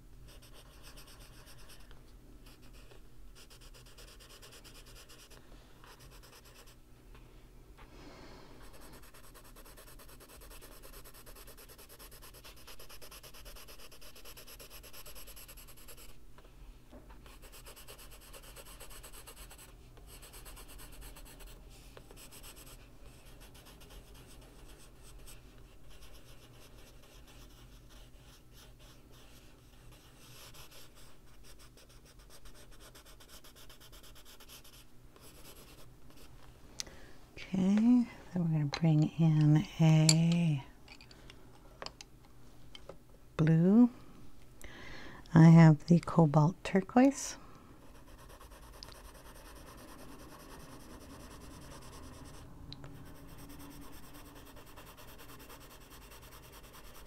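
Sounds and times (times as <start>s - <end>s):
colored pencil scratching on paper: 0.3s - 6.8s, 8.6s - 16.2s, 17.2s - 36.3s, 47.8s - 57.0s.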